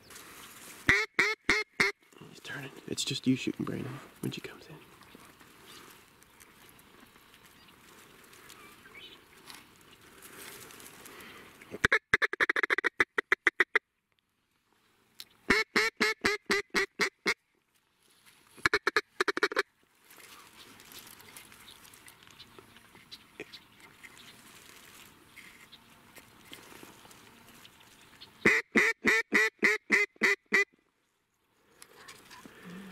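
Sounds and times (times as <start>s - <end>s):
faint steady hiss: 2.0s - 11.8s, 14.0s - 15.5s.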